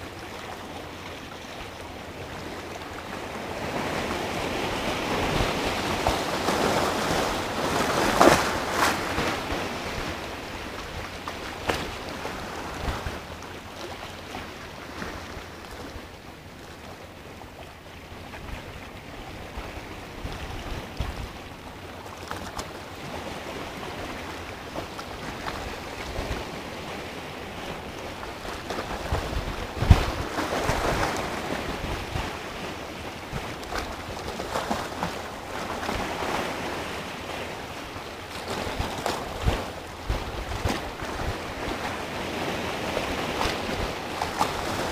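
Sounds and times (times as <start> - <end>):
sea waves breaking on rock: 2.1 - 16.8, 22.0 - 44.9
wind buffeting microphone: 27.5 - 36.3, 37.9 - 44.9.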